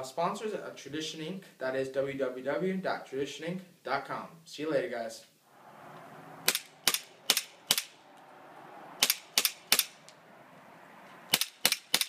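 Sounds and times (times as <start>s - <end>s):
airsoft pistol shots: 6.4s - 7.9s, 9.0s - 10.0s, 11.3s - 12.0s.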